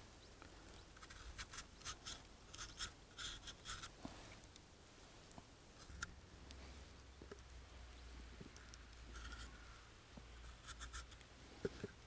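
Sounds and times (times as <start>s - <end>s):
faint clicks: 3.5s - 12.0s.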